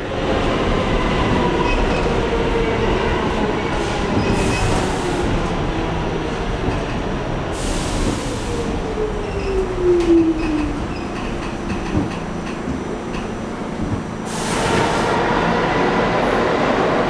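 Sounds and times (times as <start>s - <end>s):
subway wheels rumbling on rails: 0.0s - 17.0s
air hiss bursts: 14.3s - 15.1s.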